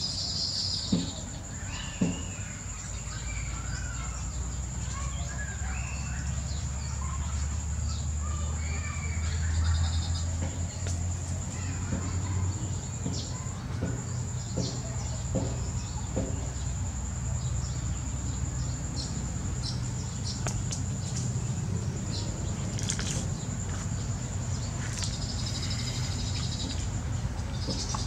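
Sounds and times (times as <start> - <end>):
low steady rumble: 15.7 - 28.0
bird chirps and clicks: 20.2 - 21.3, 22.7 - 23.3, 24.8 - 26.8, 27.5 - 28.0.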